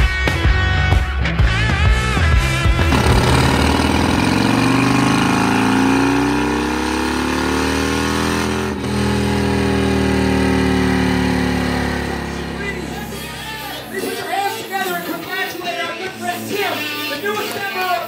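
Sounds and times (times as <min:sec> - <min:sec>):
motorcycle engine revving under load: 0:02.6 - 0:14.0.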